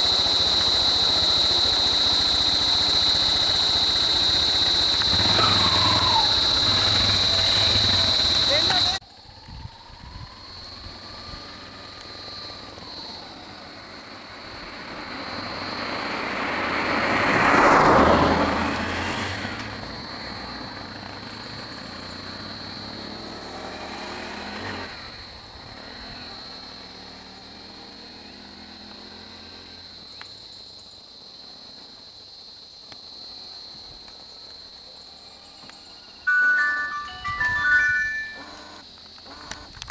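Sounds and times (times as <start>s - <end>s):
vehicle passing on road: 0.0s - 30.2s.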